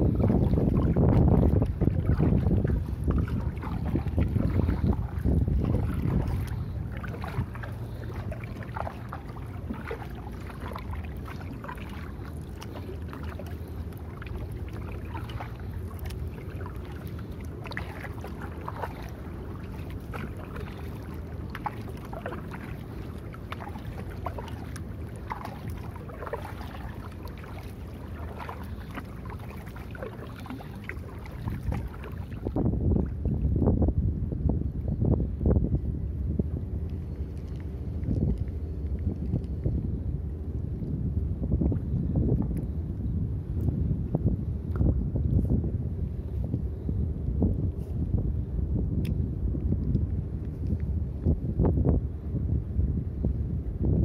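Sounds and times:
paddle splashing in water: 0.0s - 33.5s
steady low rumble: 0.0s - 54.0s.

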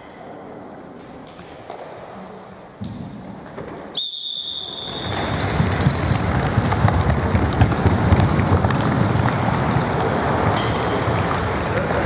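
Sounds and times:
whistle blast: 4.0s - 5.9s
shoe squeaks: 4.0s - 6.6s, 8.2s - 9.7s, 10.6s - 11.3s
running footsteps: 4.9s - 12.0s.

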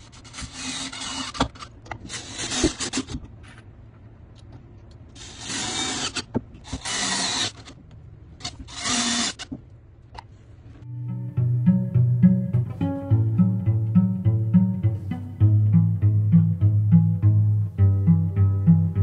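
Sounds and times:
cordless drill driving screws: 5.2s - 7.8s, 8.4s - 9.5s.

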